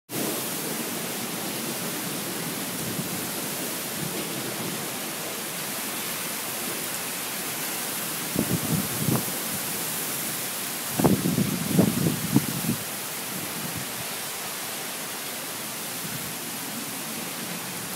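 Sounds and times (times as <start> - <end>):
heavy rain pouring: 0.1 - 17.9.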